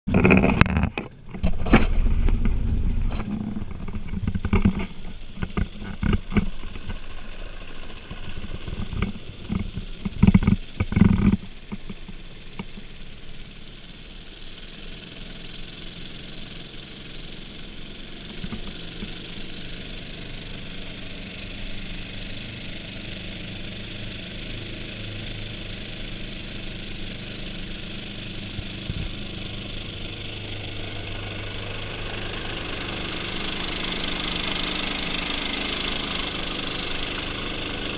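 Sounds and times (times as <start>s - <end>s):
outboard motor drone: 0.1s - 37.9s
wind and water hiss: 1.9s - 24.4s.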